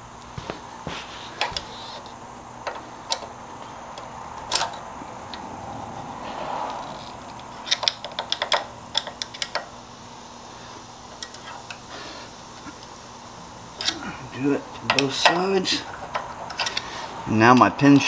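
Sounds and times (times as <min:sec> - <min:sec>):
screwdriver clicking against metal: 0:07.4 - 0:09.7.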